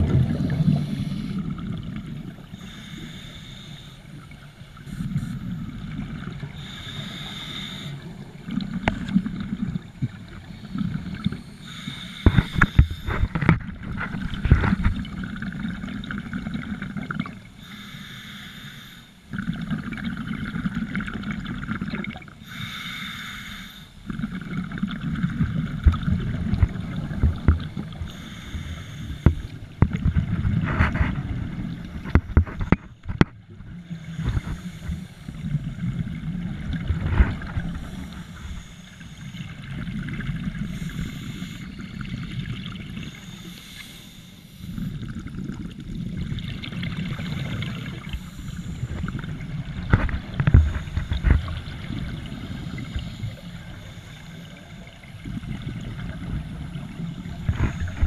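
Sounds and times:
underwater exhaled bubbles gurgling: 0.0 - 17.9, 19.2 - 58.0
high hiss of inhale: 0.6 - 1.4, 2.6 - 4.3, 6.6 - 8.1, 11.4 - 13.4, 17.6 - 19.2, 22.4 - 24.0, 28.0 - 29.7, 33.9 - 35.4, 37.8 - 39.6, 40.6 - 41.9, 43.0 - 45.0, 47.2 - 49.2, 52.6 - 54.7.

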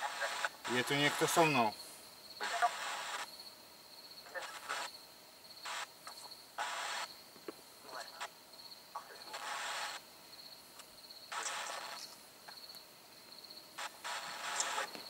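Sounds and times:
radio static bursts: 0.0 - 3.3, 4.2 - 5.0, 5.6 - 7.2, 7.8 - 10.1, 11.3 - 12.6, 13.7 - 15.0
cricket trill: 0.0 - 15.0.

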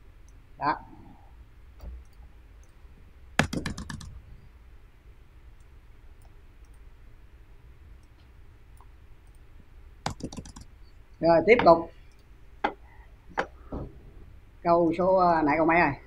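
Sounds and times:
computer keyboard keys clicking: 3.4 - 4.2, 10.0 - 10.7
faint clicks: 5.6 - 6.9.

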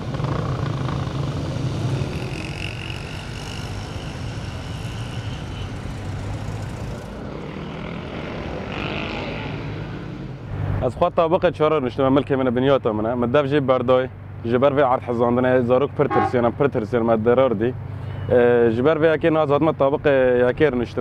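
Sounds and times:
engine drone: 0.0 - 10.8
street noise: 0.0 - 21.0
thin high whine: 1.9 - 7.1.

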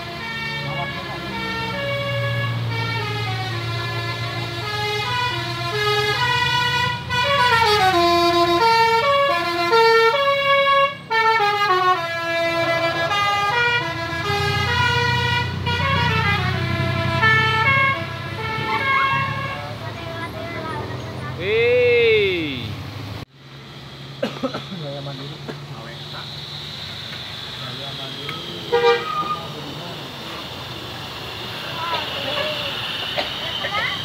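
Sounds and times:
musical bus horn playing tune: 0.0 - 20.3, 28.6 - 29.6
bus engine rumble: 0.0 - 34.0.

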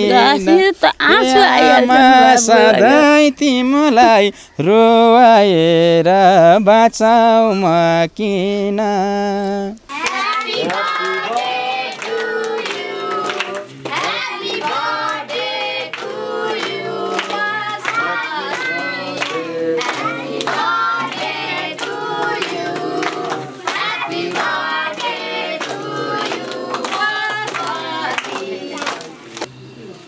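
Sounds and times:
group of voices singing: 0.0 - 29.3
rhythmic hand clapping: 9.9 - 29.5.

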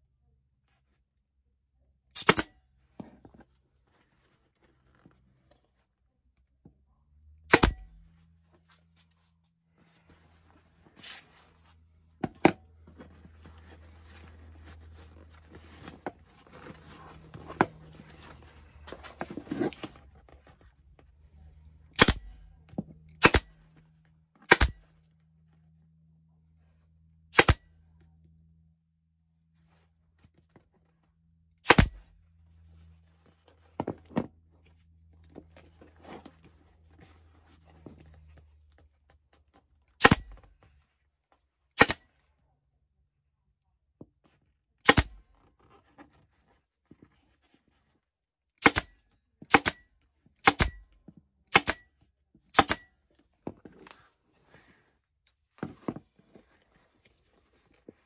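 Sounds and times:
pneumatic stapler snaps: 2.1 - 2.5, 7.5 - 7.8, 22.0 - 22.2, 24.5 - 24.8, 27.3 - 27.6, 31.6 - 32.0, 41.8 - 42.0, 44.8 - 45.1, 48.6 - 48.9, 49.5 - 49.8, 50.4 - 50.8, 51.5 - 51.8, 52.5 - 52.8.

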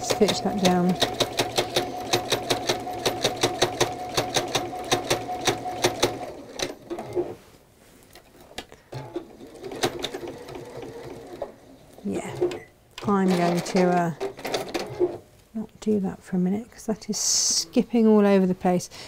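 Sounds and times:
sewing machine motor hum: 0.0 - 7.4
sewing machine stitching: 0.0 - 7.4, 8.9 - 11.5, 12.1 - 15.2.

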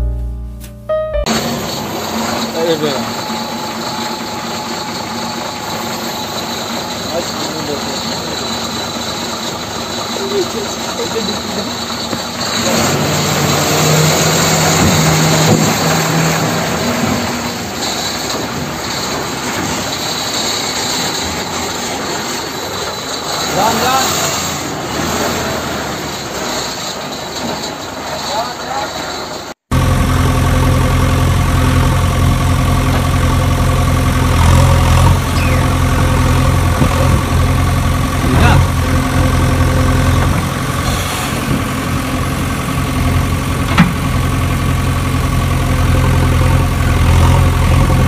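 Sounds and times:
large engine idling: 1.3 - 48.0
engine low hum: 29.7 - 48.0.

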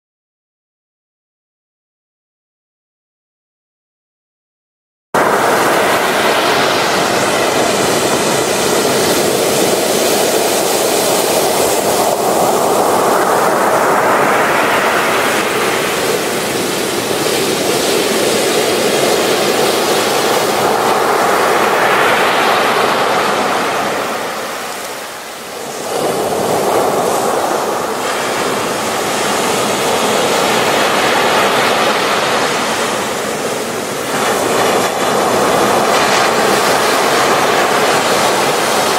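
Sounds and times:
ocean surf breaking on shore: 5.2 - 38.9.

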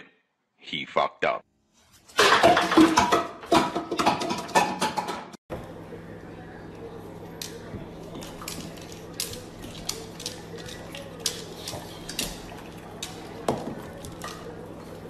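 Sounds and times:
low steady hum: 5.5 - 15.0.

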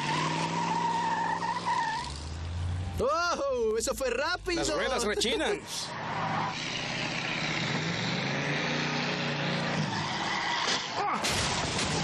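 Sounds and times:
car engine revving hard: 6.3 - 11.0.

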